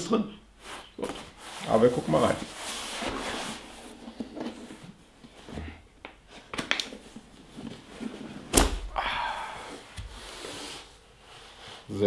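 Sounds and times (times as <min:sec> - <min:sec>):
latch snapping: 0:08.5 - 0:08.9.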